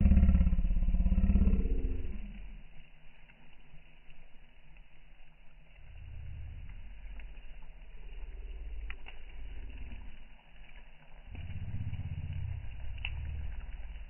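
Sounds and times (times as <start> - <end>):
crackles and pops of burning logs: 0.0 - 14.0
low fire rumble: 0.0 - 14.0.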